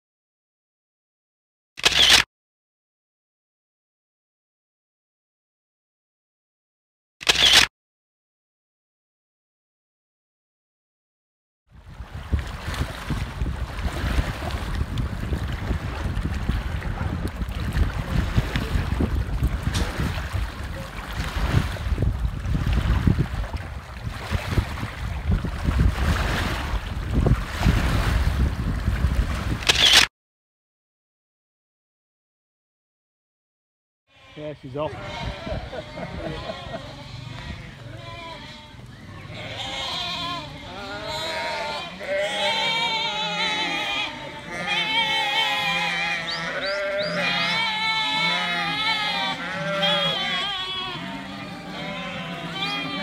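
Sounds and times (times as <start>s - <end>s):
wind buffeting microphone: 11.8s - 29.6s, 34.9s - 37.8s
small waves lapping: 11.8s - 29.8s
sheep and lambs bleating: 34.1s - 53.0s.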